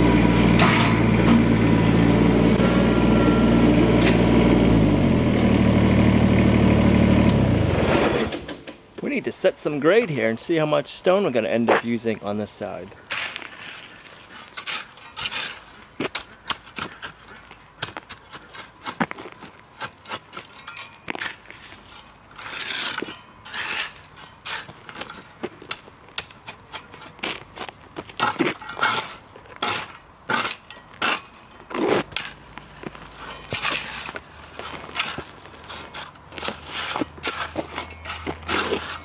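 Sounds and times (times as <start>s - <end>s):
rake scraping through gravel: 13.1s - 39.0s
stones clinking against metal tines: 14.4s - 27.4s, 28.0s - 39.0s.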